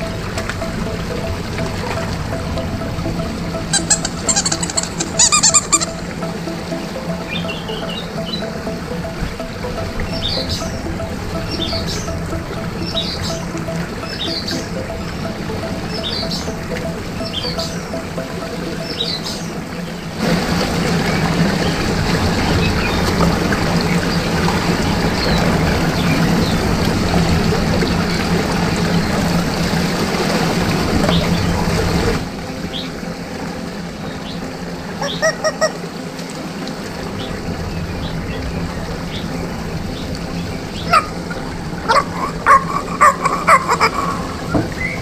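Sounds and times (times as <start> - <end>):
rubber chicken toy squawking: 3.7 - 6.0, 35.0 - 35.8, 41.9 - 44.2.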